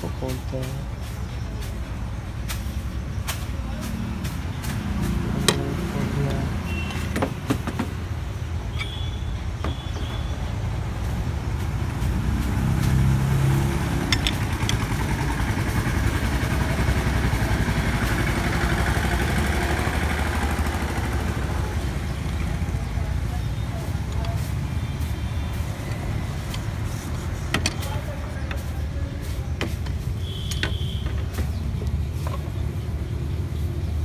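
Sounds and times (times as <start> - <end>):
low rumble of motor vehicle: 0.0 - 34.0
sharp metallic clicks: 12.5 - 15.4.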